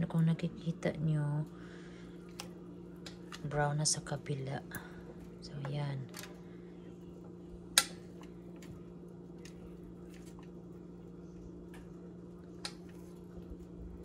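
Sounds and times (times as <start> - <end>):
steady low hum: 0.0 - 14.0
metal tongs clicking in pan: 7.8 - 8.0.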